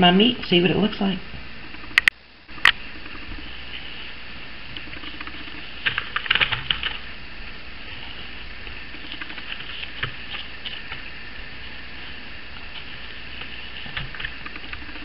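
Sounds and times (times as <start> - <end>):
low room hum: 0.0 - 15.0
gloved hands handling ground meat: 7.7 - 15.0.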